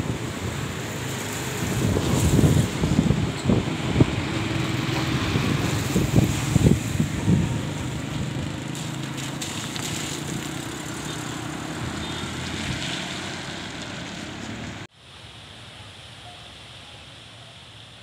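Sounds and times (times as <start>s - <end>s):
traffic on a wet road: 0.0s - 14.9s
steady hiss: 15.0s - 18.0s.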